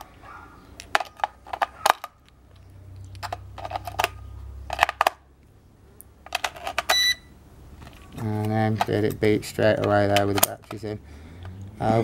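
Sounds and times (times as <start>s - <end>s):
batteries clicking into plastic compartment: 0.8s - 5.2s, 6.2s - 7.0s, 7.8s - 11.5s.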